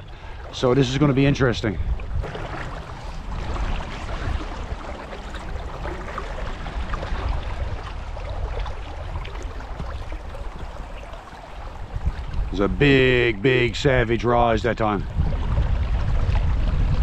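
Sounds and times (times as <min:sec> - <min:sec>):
river water rushing: 0:02.2 - 0:12.1.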